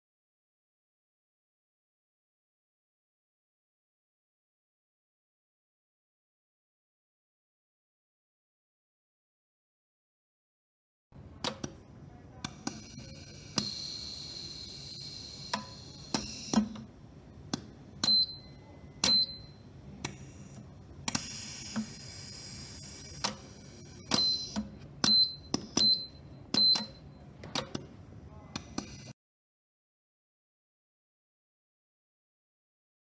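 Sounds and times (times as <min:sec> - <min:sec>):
air hiss from valves: 0:21.1 - 0:24.0.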